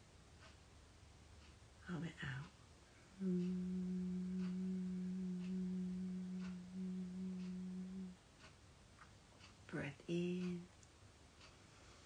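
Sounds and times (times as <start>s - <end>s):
woman humming low note: 3.2s - 8.2s.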